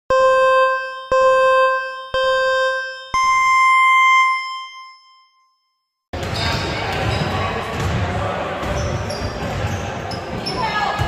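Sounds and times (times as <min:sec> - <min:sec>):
electronic countdown beeps: 0:00.1 - 0:05.7.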